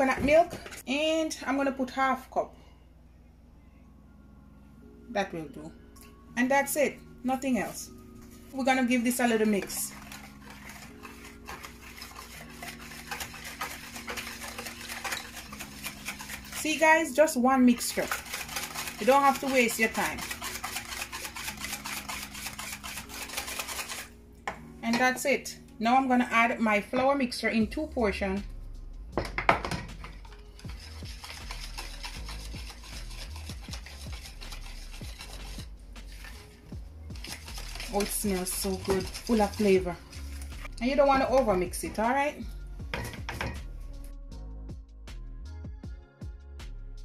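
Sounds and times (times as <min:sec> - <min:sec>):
wire whisk scraping bowl: 0:06.8 - 0:24.2, 0:30.0 - 0:42.2, 0:42.9 - 0:43.6.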